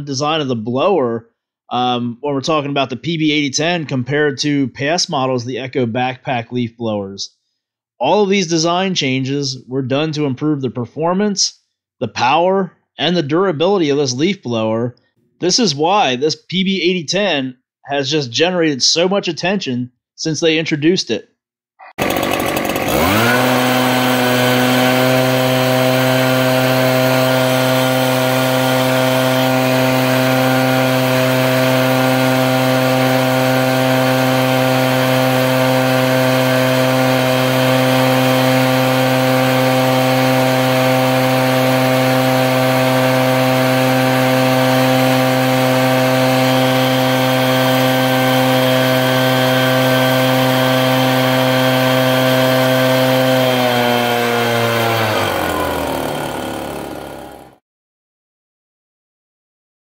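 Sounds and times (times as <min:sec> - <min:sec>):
leaf blower engine: 0:22.0 - 0:57.6.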